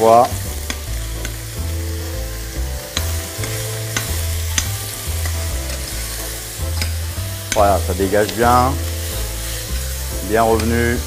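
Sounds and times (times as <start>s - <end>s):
food sizzling in a saucepan: 0.0s - 11.0s.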